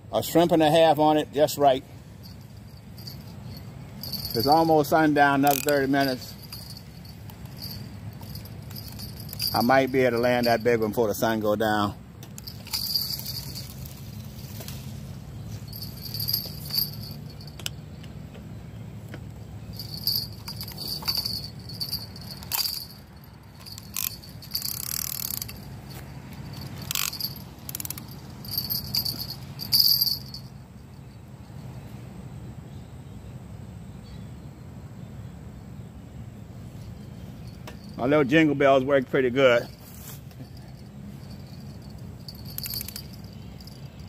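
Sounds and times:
small jingle bells ringing: 0:02.1 - 0:14.8, 0:15.4 - 0:17.6, 0:19.6 - 0:31.7, 0:36.7 - 0:38.6, 0:39.2 - 0:44.0
low hum: 0:12.1 - 0:18.1.

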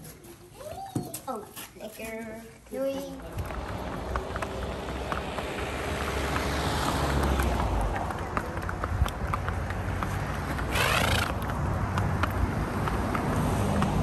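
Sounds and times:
hooves clip-clopping on bricks: 0:00.0 - 0:14.0
road traffic: 0:00.0 - 0:14.0
car passing: 0:03.2 - 0:14.0.

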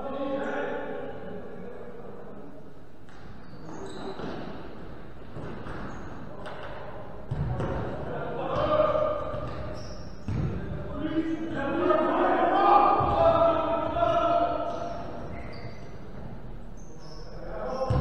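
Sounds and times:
players shouting: 0:10.9 - 0:15.2.

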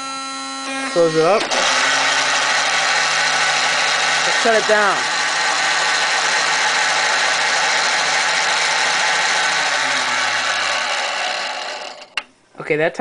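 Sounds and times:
low hum falling in pitch: 0:07.0 - 0:12.2.

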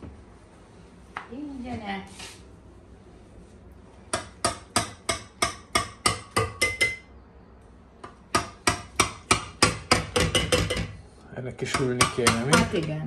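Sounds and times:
knife chopping on a board: 0:08.0 - 0:11.0, 0:11.6 - 0:13.0.

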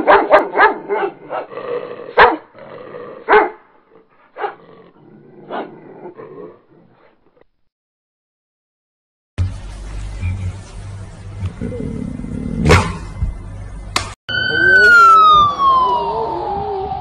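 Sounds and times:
dogs barking: 0:00.0 - 0:01.5, 0:02.1 - 0:02.6, 0:03.2 - 0:03.7, 0:04.3 - 0:04.6.

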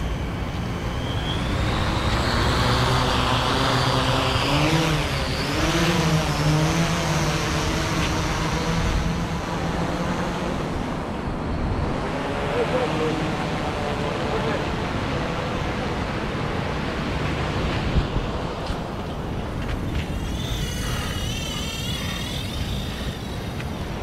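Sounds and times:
drone motors whining: 0:00.0 - 0:24.0
wind rumble: 0:13.3 - 0:24.0.

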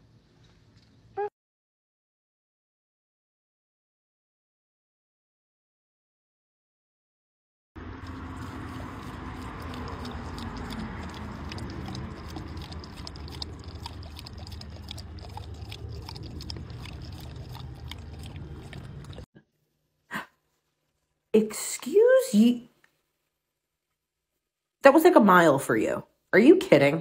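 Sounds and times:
water trickling from bottle: 0:08.0 - 0:19.2
dog lapping and gulping: 0:08.0 - 0:19.3.

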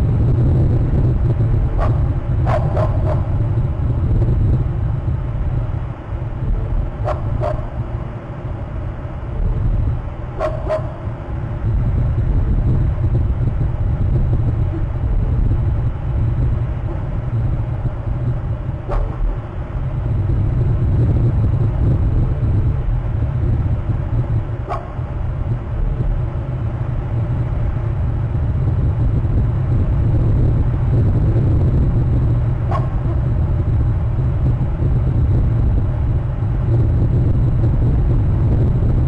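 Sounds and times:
steady low rumble: 0:00.0 - 0:39.0.

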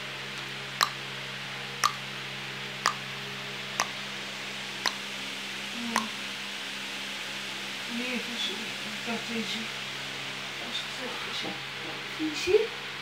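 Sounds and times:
steady hiss and low hum: 0:00.0 - 0:13.0
sharp clicks: 0:01.8 - 0:02.0.

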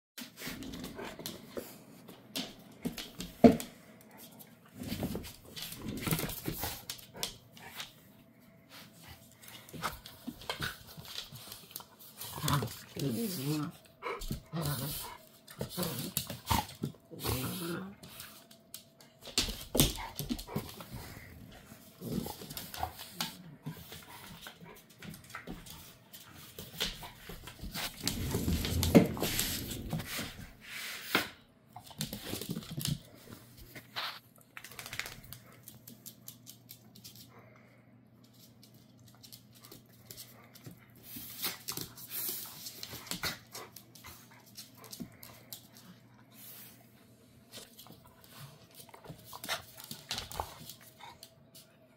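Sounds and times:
dogs scuffling: 0:00.2 - 0:08.0, 0:08.7 - 0:37.6.

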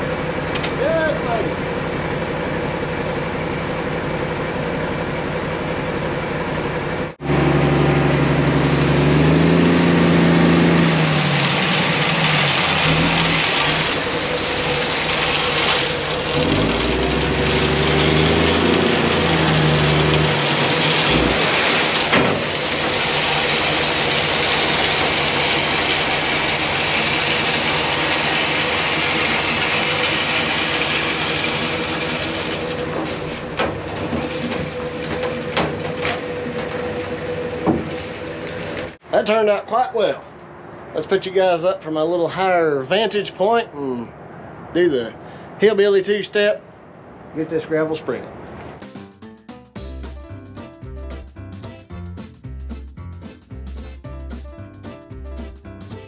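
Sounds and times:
diesel truck engine: 0:00.0 - 0:45.7
gravel spreading hiss: 0:08.2 - 0:33.4.

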